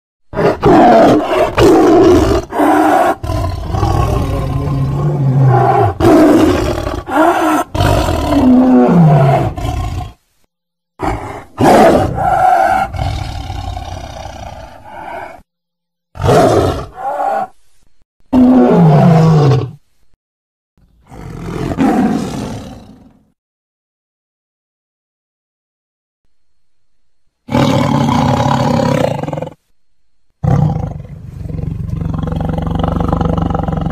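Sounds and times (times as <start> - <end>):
tiger roaring: 0.3 - 10.2, 11.0 - 15.4, 16.2 - 17.6, 18.3 - 19.8, 21.0 - 23.2, 27.5 - 29.6, 30.4 - 33.9.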